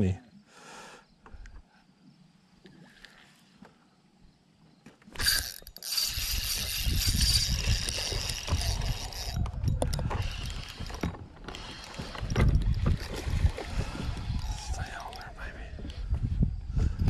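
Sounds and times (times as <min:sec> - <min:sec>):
fishing reel gears whirring: 0:05.2 - 0:15.2
wind rumbling on microphone: 0:06.0 - 0:17.0.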